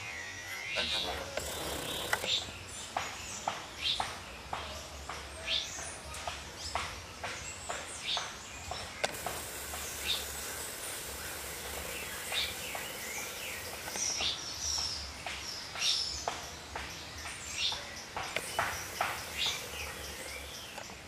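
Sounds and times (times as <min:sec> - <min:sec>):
bird chirps and calls: 0:00.0 - 0:21.0
high hiss: 0:09.0 - 0:14.8, 0:18.3 - 0:21.0.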